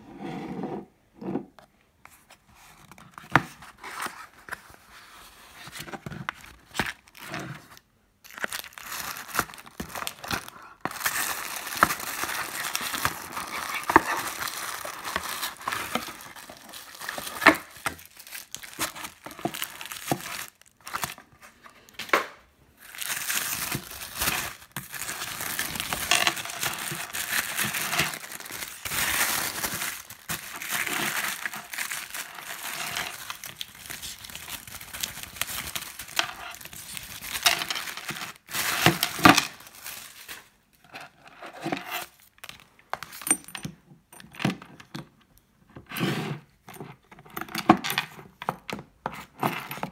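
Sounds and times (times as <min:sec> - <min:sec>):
tissue paper crinkling: 0:08.2 - 0:21.5, 0:22.8 - 0:40.5.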